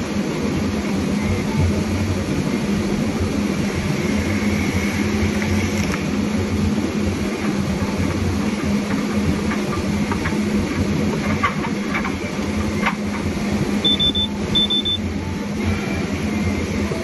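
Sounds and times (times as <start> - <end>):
harvester engine and hydraulics: 0.0 - 17.0
high beeps: 13.8 - 15.1.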